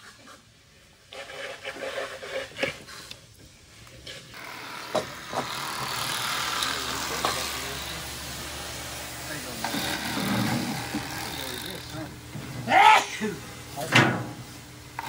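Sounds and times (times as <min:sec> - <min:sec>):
electric knife buzzing: 0:04.3 - 0:12.2.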